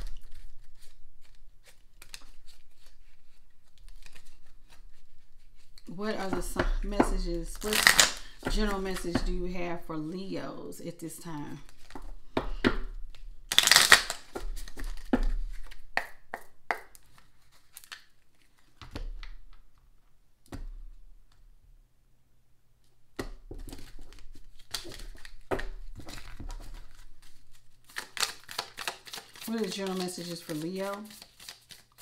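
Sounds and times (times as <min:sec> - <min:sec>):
cards being shuffled: 0:00.0 - 0:09.2, 0:11.3 - 0:12.2, 0:13.1 - 0:19.6, 0:23.6 - 0:32.0.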